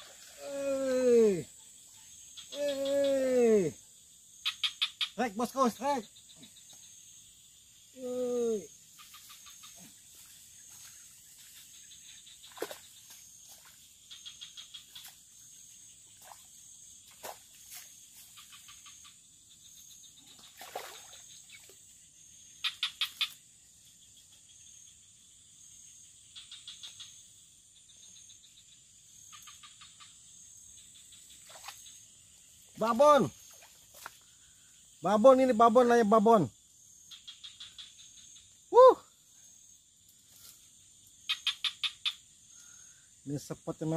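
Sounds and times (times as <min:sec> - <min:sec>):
high-pitched insect drone: 0:00.0 - 0:43.9
rapid clicking calls: 0:04.4 - 0:06.9, 0:08.9 - 0:09.8, 0:22.6 - 0:23.4, 0:29.3 - 0:30.3, 0:37.1 - 0:38.5, 0:41.2 - 0:42.3.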